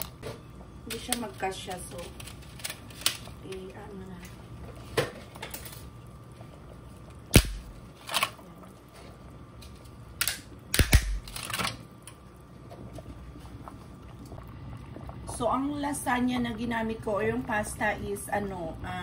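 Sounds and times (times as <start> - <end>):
pot boiling: 0.0 - 19.0
sharp clicks and snaps: 10.2 - 12.2.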